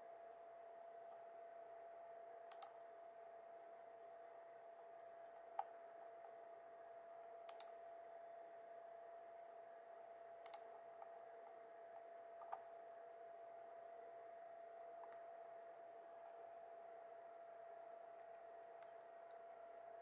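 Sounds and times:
faint steady hum: 0.0s - 20.0s
computer mouse clicking: 2.5s - 2.8s, 7.4s - 7.8s, 10.4s - 10.7s, 12.4s - 12.7s.

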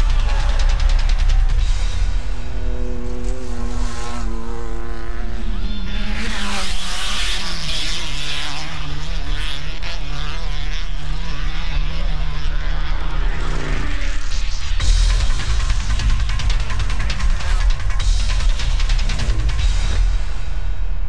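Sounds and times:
race vehicle engine passing: 0.0s - 14.8s.

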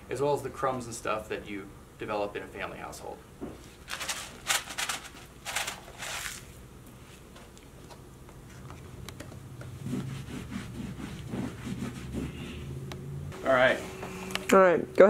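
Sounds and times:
sprinkles rattling in shaker box: 3.9s - 6.5s.

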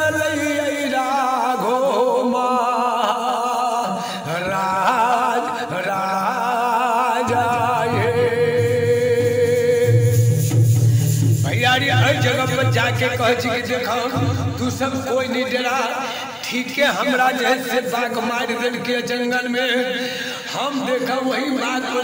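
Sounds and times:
low accompaniment: 7.3s - 15.3s
man singing folk melody: 11.4s - 15.8s.

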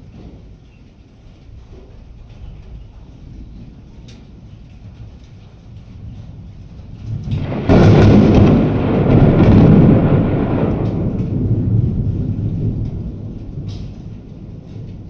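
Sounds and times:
rolling thunder rumble: 0.0s - 15.0s
thunderclap crack: 6.4s - 15.0s.

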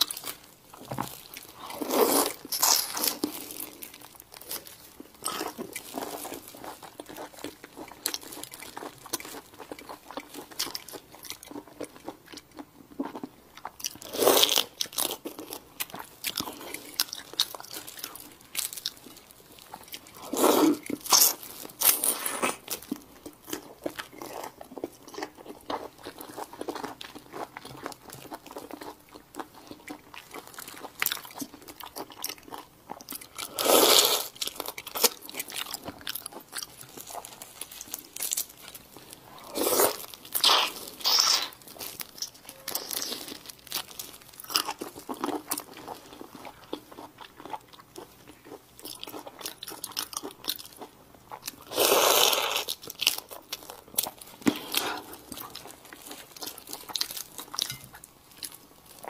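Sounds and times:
chewing with wet clicks: 4.7s - 14.1s, 14.8s - 21.4s, 22.6s - 33.5s, 40.0s - 51.7s, 52.6s - 59.0s.

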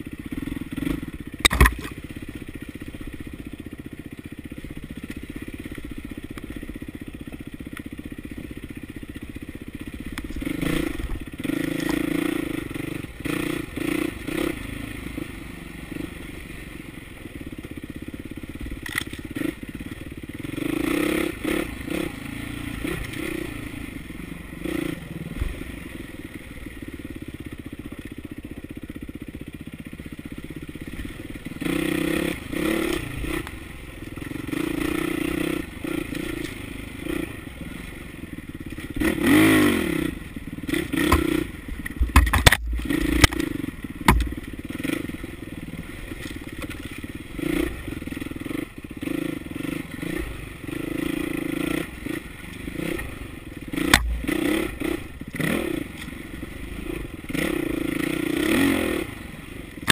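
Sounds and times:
dirt bike engine revving: 0.0s - 4.0s, 9.4s - 16.4s, 18.4s - 25.9s, 30.6s - 46.2s, 46.8s - 59.9s
bike knocking over rocks: 1.4s - 2.0s, 41.0s - 43.4s, 44.0s - 44.5s.

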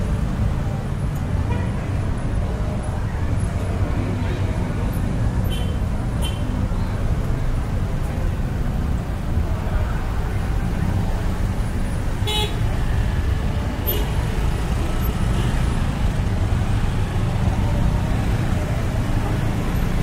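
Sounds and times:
street traffic engine rumble: 0.0s - 20.0s.

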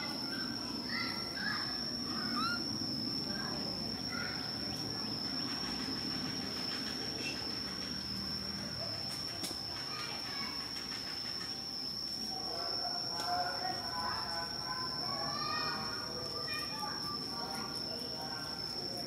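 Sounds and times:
high-pitched insect drone: 0.0s - 19.0s
short chirping calls: 2.1s - 2.8s.

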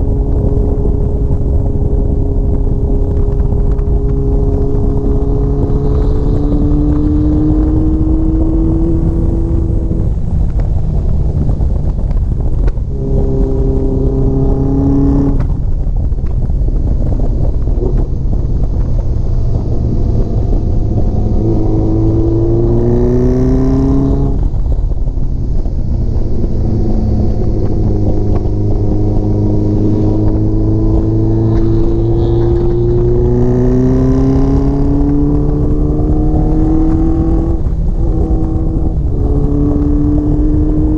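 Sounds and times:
motorcycle engine revving through gears: 0.0s - 40.9s
wind rush on microphone: 0.0s - 40.9s.

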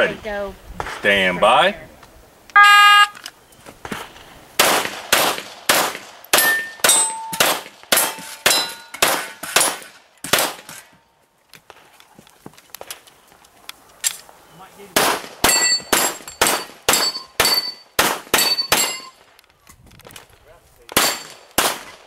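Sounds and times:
shot timer beep: 2.6s - 3.2s
rapid pistol shots: 4.6s - 10.8s, 15.0s - 19.1s, 20.9s - 22.0s
metallic rings of steel targets: 6.4s - 9.6s, 15.5s - 19.2s, 21.0s - 21.4s.

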